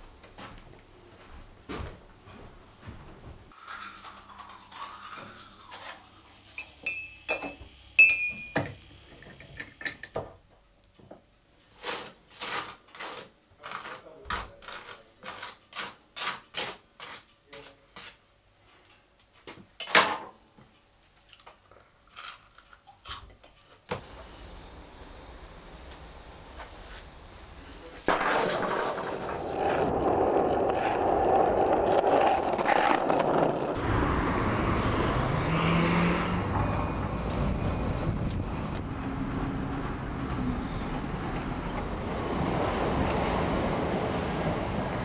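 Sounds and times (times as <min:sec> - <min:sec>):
crockery and cutlery clinking: 0:06.6 - 0:08.8.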